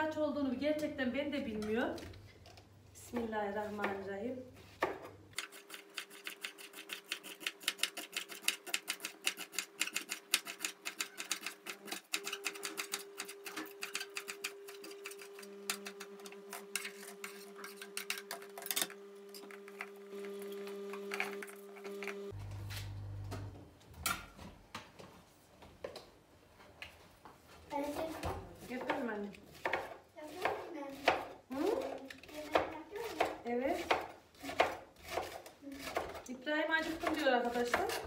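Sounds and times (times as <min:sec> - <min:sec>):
knife chopping on cutting board: 0:28.0 - 0:31.3, 0:32.5 - 0:36.2, 0:36.8 - 0:38.0.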